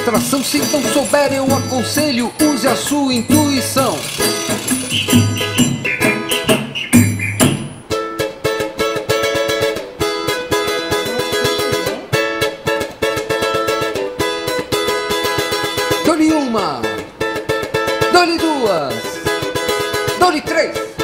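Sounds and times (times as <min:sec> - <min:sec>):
plucked string instrument run: 0:00.0 - 0:08.0
strong music beats: 0:00.0 - 0:08.0.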